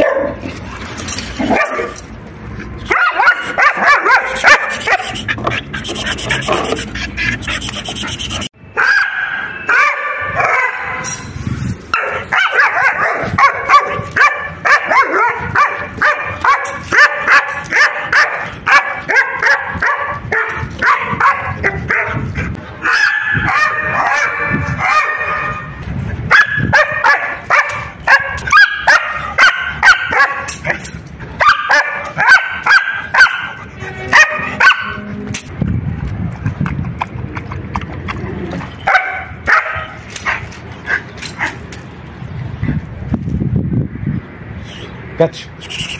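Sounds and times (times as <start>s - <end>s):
dog barking and yipping: 0.0s - 0.4s, 1.4s - 2.0s, 2.8s - 11.2s, 11.9s - 35.1s, 38.6s - 41.7s.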